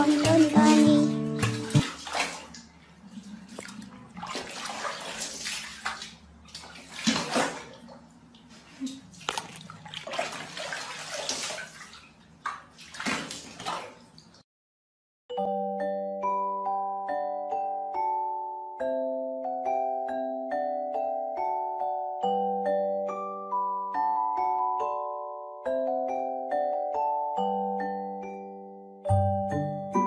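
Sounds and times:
water splashing in a plastic tub: 0:00.0 - 0:14.4.

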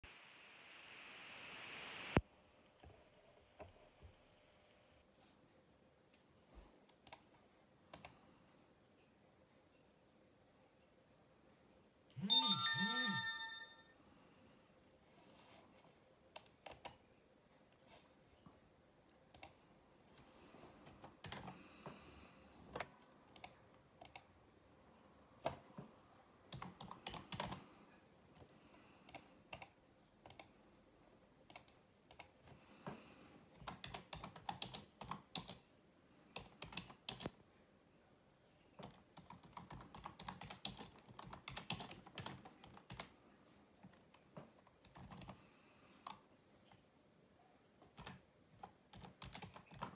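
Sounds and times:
typing on a computer keyboard: 0:06.9 - 0:07.3, 0:07.9 - 0:08.2, 0:16.3 - 0:17.0, 0:19.3 - 0:19.6, 0:20.8 - 0:21.6, 0:22.7 - 0:24.3, 0:26.5 - 0:27.7, 0:28.4 - 0:30.6, 0:31.4 - 0:32.6, 0:33.5 - 0:35.7, 0:36.3 - 0:37.4, 0:38.8 - 0:43.2, 0:43.8 - 0:46.8, 0:47.8 - 0:49.9.

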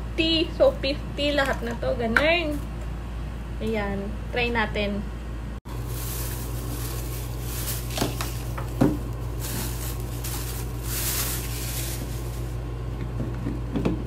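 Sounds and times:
steady low hum: 0:00.0 - 0:14.0
plastic bag crinkling: 0:05.7 - 0:12.6.

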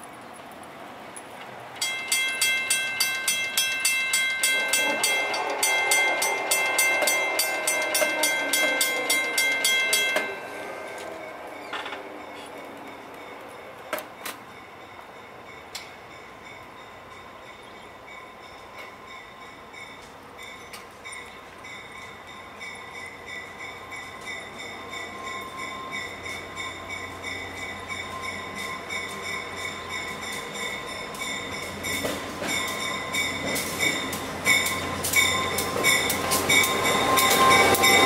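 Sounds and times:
railroad crossing bell ringing: 0:01.8 - 0:38.0
distant locomotive horn: 0:04.4 - 0:14.0, 0:34.6 - 0:38.0.

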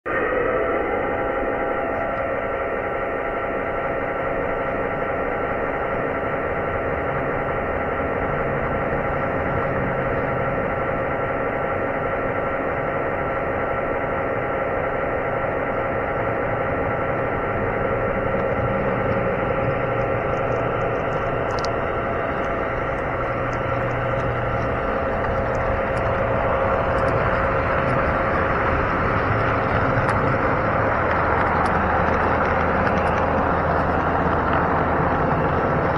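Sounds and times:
model train motor and wheels humming: 0:00.1 - 0:35.9.

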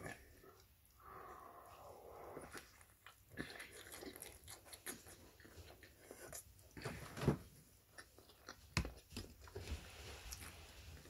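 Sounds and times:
person chewing: 0:00.0 - 0:06.9, 0:07.7 - 0:09.6.

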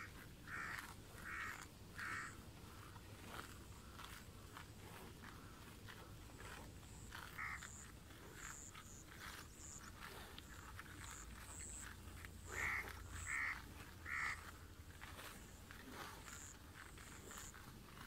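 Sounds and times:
loud short bird calls: 0:00.0 - 0:02.4, 0:07.3 - 0:07.7, 0:12.5 - 0:14.4
buffalo tearing and chewing grass: 0:00.0 - 0:18.0.

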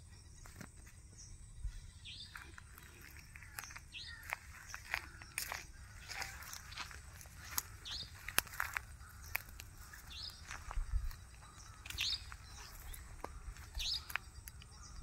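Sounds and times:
bird chirping: 0:00.0 - 0:15.0
sharp clicks and crackles: 0:11.8 - 0:14.7.

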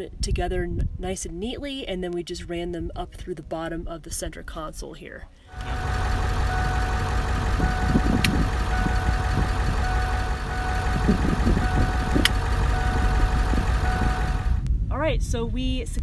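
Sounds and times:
engine idling with whine: 0:05.5 - 0:14.6
rocker switch clicks: 0:08.0 - 0:09.0, 0:12.1 - 0:12.5.

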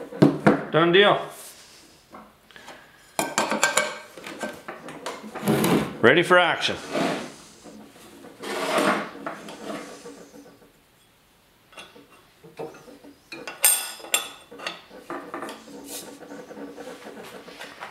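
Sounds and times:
hands rubbing on metal table: 0:06.8 - 0:10.7, 0:14.4 - 0:17.9.

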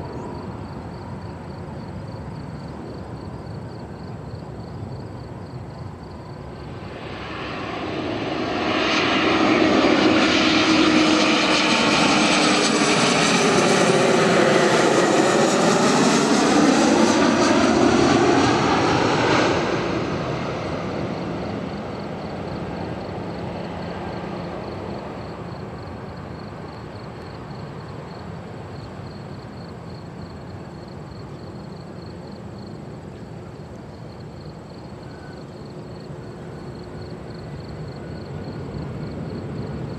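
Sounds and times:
jet airliner passing overhead: 0:00.0 - 0:39.9
distant jet rumble: 0:04.8 - 0:28.7.

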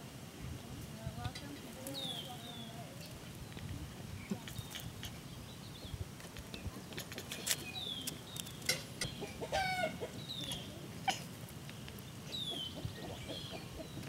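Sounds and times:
chickens clucking: 0:06.6 - 0:14.0.

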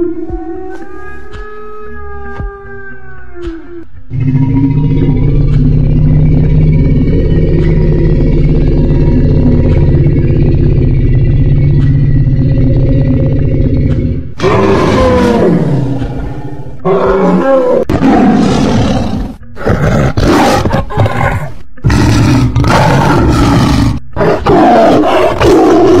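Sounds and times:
low droning animal call: 0:00.0 - 0:20.2
big cat roars and snarls: 0:00.0 - 0:26.0.

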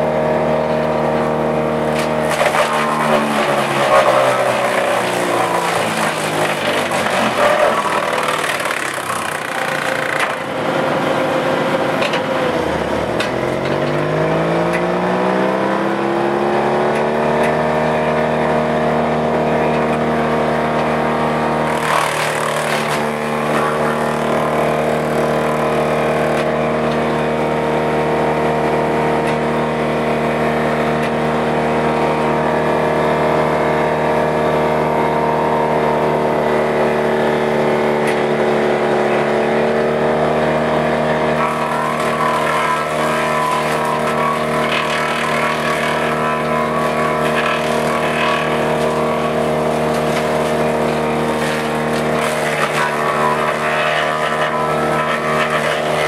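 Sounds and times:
diesel engine running: 0:00.0 - 0:56.0
branches crackling through chipper: 0:00.4 - 0:12.5, 0:19.6 - 0:27.2, 0:40.3 - 0:56.0.

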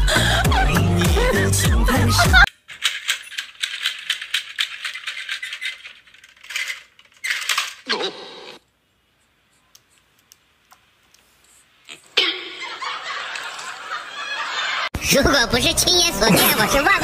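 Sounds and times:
toy plastic clicking: 0:02.7 - 0:07.8.

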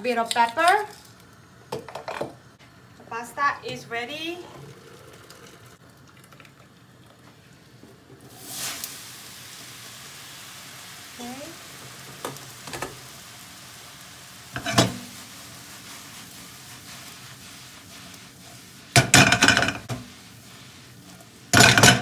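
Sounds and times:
frying pan clattering: 0:14.5 - 0:15.3, 0:18.9 - 0:20.1, 0:21.5 - 0:22.0
pan knock: 0:19.0 - 0:20.0, 0:21.6 - 0:22.0.

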